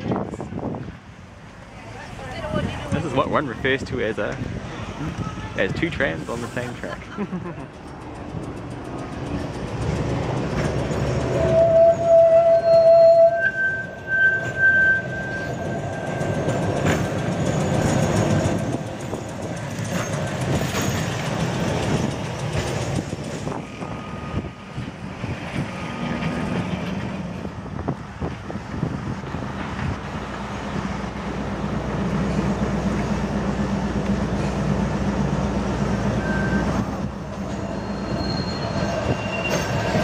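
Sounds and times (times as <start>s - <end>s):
tram rolling rumble: 0.0s - 40.0s
wheels clicking over track: 7.4s - 11.8s
high wheel squeal: 11.3s - 21.2s, 23.6s - 24.6s, 36.0s - 40.0s.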